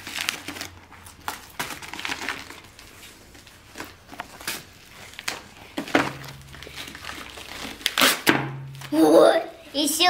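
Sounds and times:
plastic mailer crinkling: 0.0s - 9.1s.

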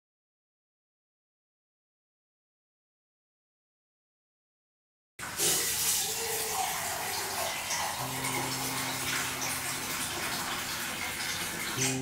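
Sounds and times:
tap water running into sink: 5.2s - 12.0s
low steady tone: 8.0s - 10.6s.

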